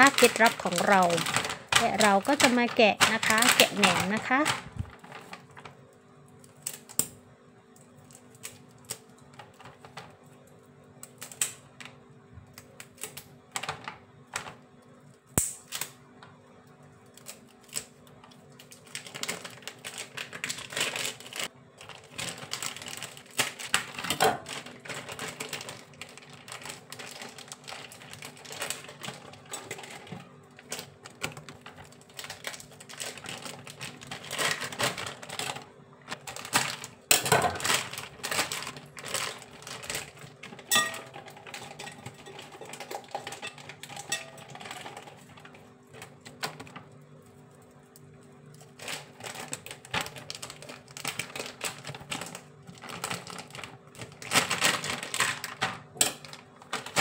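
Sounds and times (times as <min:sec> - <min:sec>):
plastic wrappers crinkling: 0:00.0 - 0:06.9, 0:17.0 - 0:57.0.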